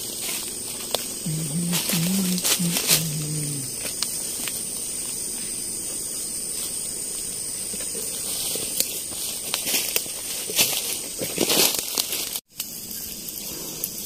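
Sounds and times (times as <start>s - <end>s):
insect chorus hissing: 0.0s - 14.0s
high whine: 1.2s - 3.8s.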